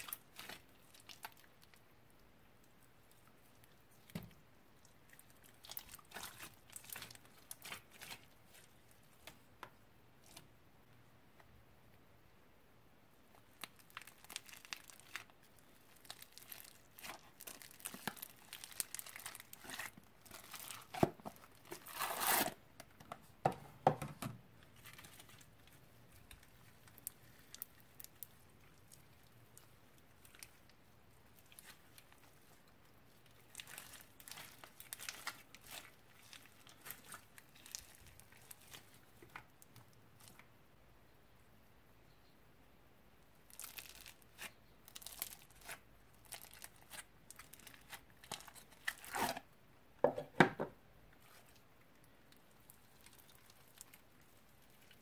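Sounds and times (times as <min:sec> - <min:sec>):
slime crackling and popping: 0:13.4 - 0:22.4, 0:24.8 - 0:39.6, 0:43.5 - 0:49.4, 0:52.4 - 0:55.0.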